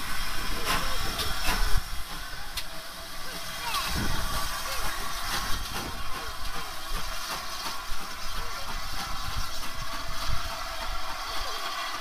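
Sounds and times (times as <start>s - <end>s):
slow-moving train rumble: 0.0s - 12.0s
steam hissing from locomotive: 0.0s - 12.0s.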